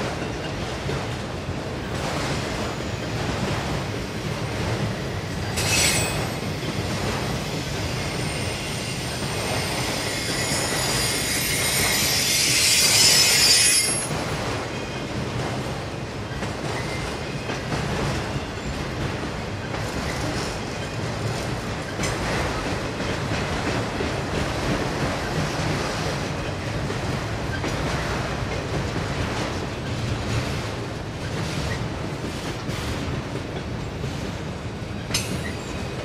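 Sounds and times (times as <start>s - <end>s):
freight train wheels rumbling: 0.0s - 36.0s
high-pitched wheel squeal: 5.6s - 6.4s, 7.6s - 14.1s.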